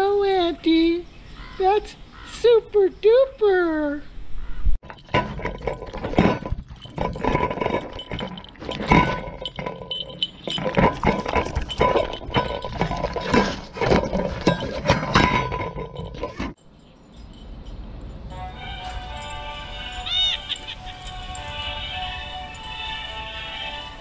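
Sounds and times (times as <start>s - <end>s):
plate clinks: 4.8s - 23.1s
dog chewing and lapping: 5.0s - 16.5s.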